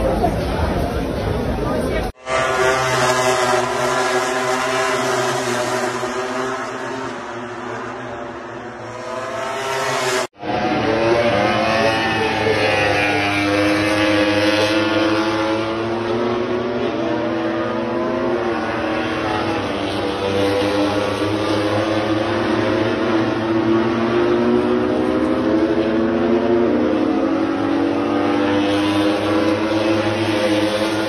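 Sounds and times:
racing motorcycles at high revs: 0:02.2 - 0:31.0.

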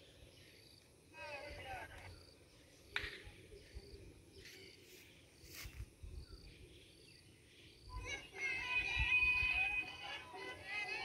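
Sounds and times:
cricket chirping: 0:00.0 - 0:10.6
soft rustles: 0:04.4 - 0:06.0.

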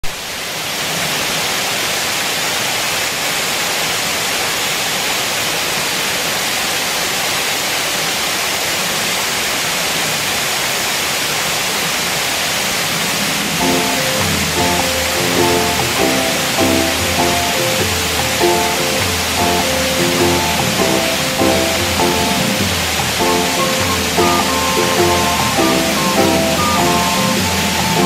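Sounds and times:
waterfall rushing into pool: 0:00.0 - 0:28.0
background music: 0:13.6 - 0:28.0.

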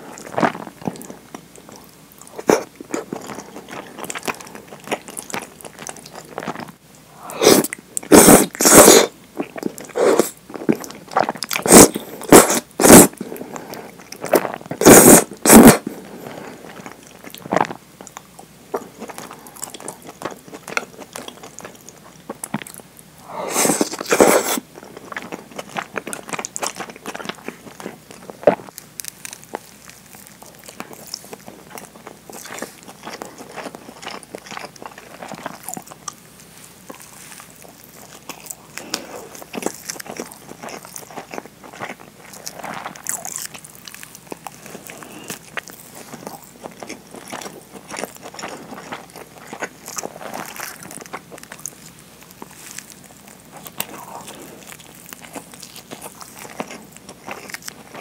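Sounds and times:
wet chewing: 0:00.0 - 0:06.8, 0:23.5 - 0:58.0
noodle slurping: 0:07.3 - 0:09.1, 0:11.6 - 0:16.8.

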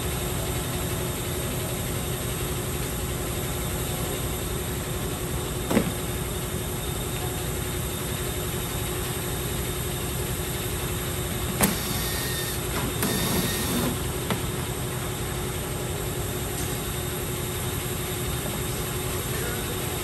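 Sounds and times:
workshop background noise: 0:00.0 - 0:20.0
small motor whining: 0:11.6 - 0:14.0.

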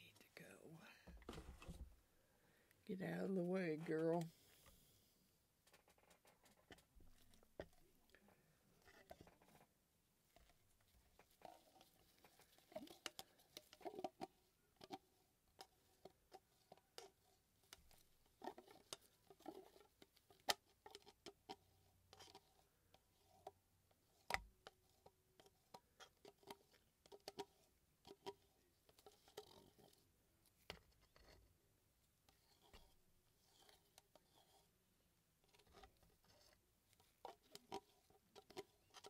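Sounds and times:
dull thump: 0:01.1 - 0:02.0.

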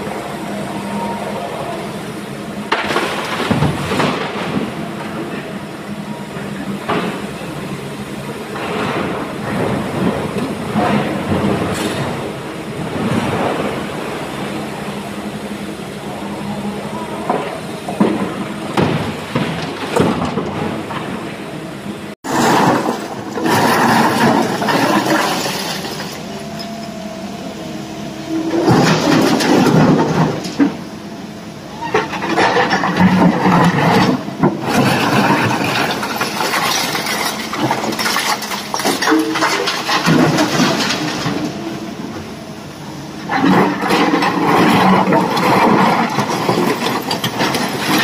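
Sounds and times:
excavator diesel engine running: 0:00.0 - 0:48.0
rocks clattering into steel truck bed: 0:18.0 - 0:21.1, 0:22.3 - 0:26.3, 0:28.6 - 0:30.8, 0:31.8 - 0:41.6, 0:43.2 - 0:48.0.

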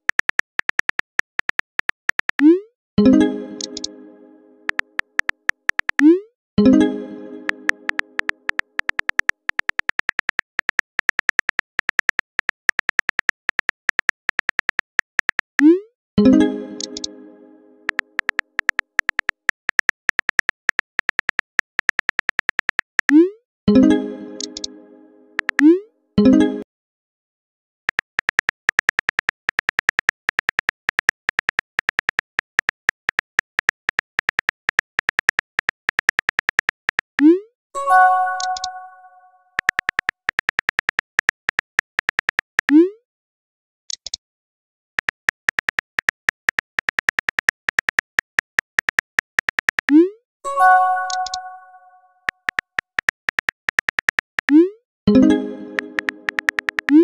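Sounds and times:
phone keyboard typing clicks: 0:00.0 - 0:02.6, 0:03.6 - 0:04.0, 0:04.7 - 0:06.2, 0:07.3 - 0:15.6, 0:16.8 - 0:17.1, 0:17.9 - 0:23.2, 0:24.3 - 0:24.8, 0:25.4 - 0:25.7, 0:27.9 - 0:37.2, 0:38.2 - 0:38.9, 0:39.6 - 0:42.8, 0:45.0 - 0:50.0, 0:50.7 - 0:57.0
ringing chime: 0:50.5 - 0:52.0.

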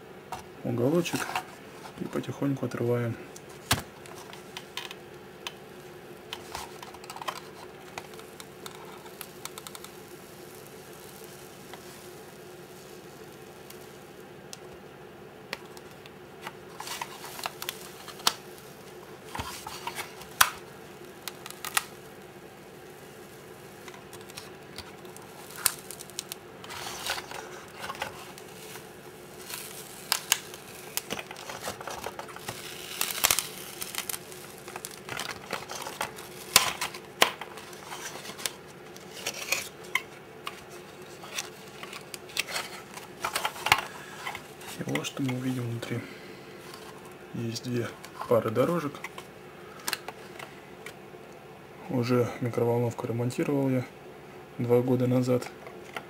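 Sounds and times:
plastic film crinkling: 0:03.4 - 0:14.8, 0:15.5 - 0:50.6
plastic film peeling crackles: 0:03.4 - 0:14.8, 0:15.5 - 0:46.0, 0:46.6 - 0:51.0.

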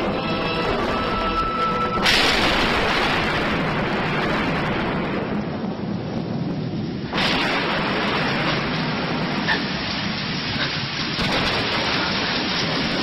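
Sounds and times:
heavy rain: 0:00.0 - 0:13.0
thunderclap rolling: 0:00.0 - 0:13.0.

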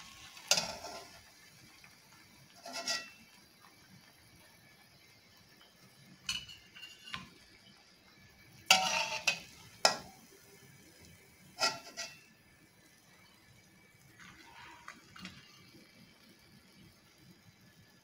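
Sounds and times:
metal spatula scraping a wok: 0:00.0 - 0:01.2, 0:02.5 - 0:03.2, 0:06.3 - 0:07.3, 0:08.7 - 0:10.3, 0:11.5 - 0:12.3, 0:14.2 - 0:15.6.

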